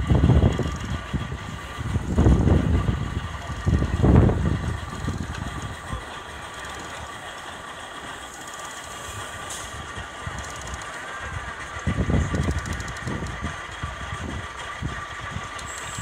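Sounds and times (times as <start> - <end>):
low rumbling: 0.0 - 16.0
steam locomotive hissing: 0.0 - 16.0
light clicks and ticks: 10.4 - 11.0, 12.3 - 13.4.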